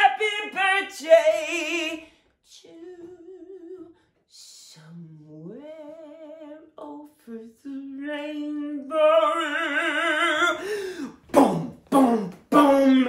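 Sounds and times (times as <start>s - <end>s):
person singing with vibrato: 0.0s - 13.0s.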